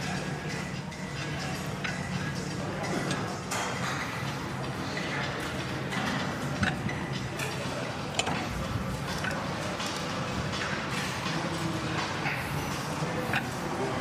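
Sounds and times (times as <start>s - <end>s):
weight machine clicks and clinks: 9.0s - 10.8s.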